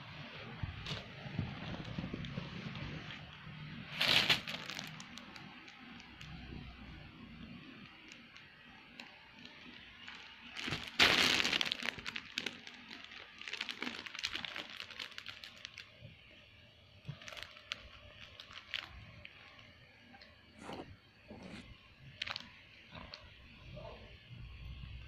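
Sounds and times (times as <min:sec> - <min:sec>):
bedding rustling: 0:04.0 - 0:04.9, 0:10.6 - 0:12.2.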